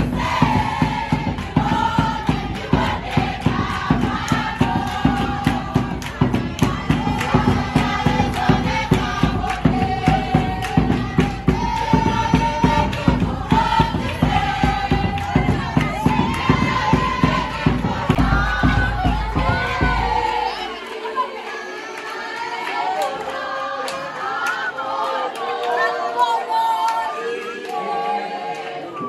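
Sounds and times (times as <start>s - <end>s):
bass drum beat: 0.0s - 20.8s
hand clapping: 0.0s - 26.2s
children singing in unison: 0.0s - 29.0s.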